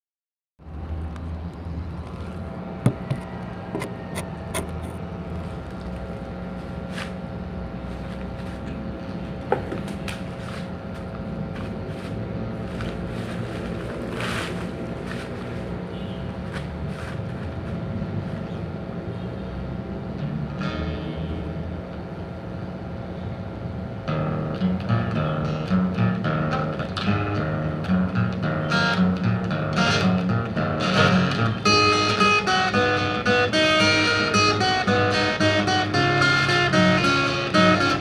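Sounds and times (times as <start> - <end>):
steady mechanical hum: 0.6 - 38.0
sharp handling knocks: 2.8 - 5.0, 9.4 - 10.3.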